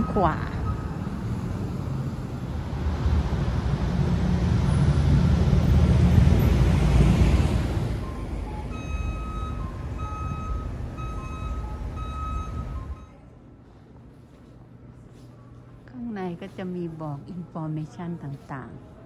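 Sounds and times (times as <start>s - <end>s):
steady traffic noise: 0.0s - 19.0s
vehicle passing close by: 0.6s - 8.5s.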